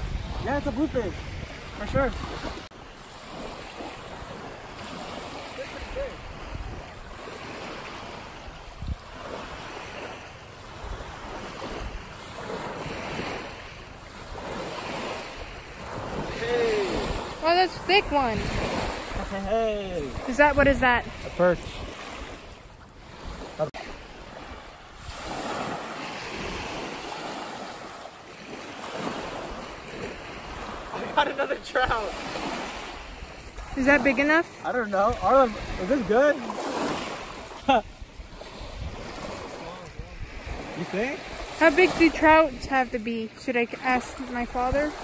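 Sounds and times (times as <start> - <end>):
wind buffeting microphone: 0.0 - 2.7, 5.8 - 27.2, 31.8 - 43.1
small waves lapping on shore: 0.0 - 45.0.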